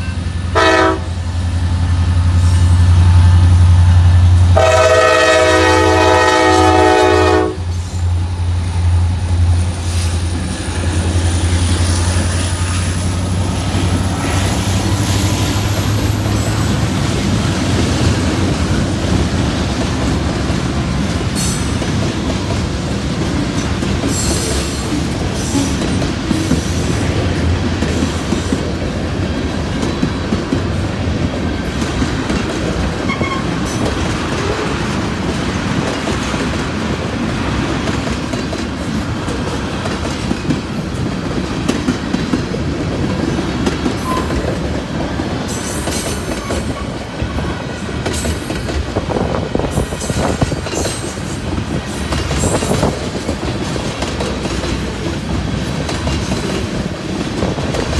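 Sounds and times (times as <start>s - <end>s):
steel wheels rumbling on rails: 0.0s - 57.9s.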